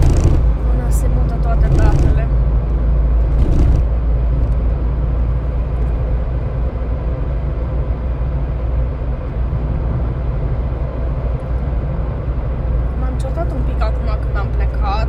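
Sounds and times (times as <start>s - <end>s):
car cabin road and engine noise: 0.0s - 15.0s.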